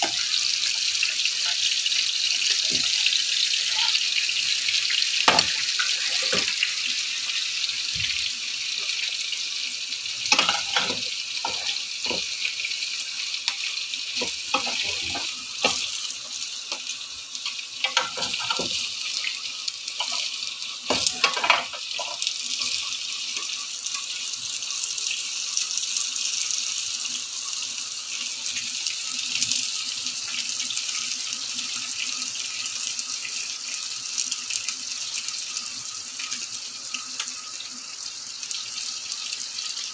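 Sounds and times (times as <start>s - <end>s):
hot oil sizzling: 0.0s - 39.9s
pans and utensils knocking: 5.3s - 5.6s, 10.3s - 12.3s, 17.8s - 18.8s, 20.9s - 22.2s.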